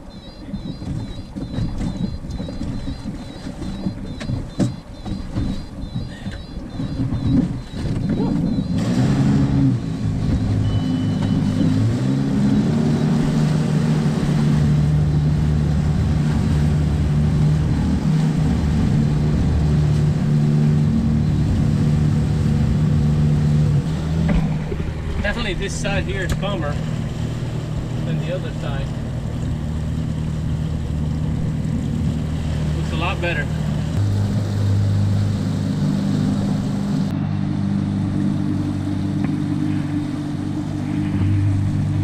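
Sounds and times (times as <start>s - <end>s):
gusty rumbling wind: 0.0s - 10.8s, 11.4s - 28.1s, 28.8s - 32.8s, 33.5s - 42.0s
thumps and sloshing: 0.0s - 11.8s, 23.8s - 28.0s
boat engine drone: 0.0s - 42.0s
rushing water: 0.0s - 42.0s.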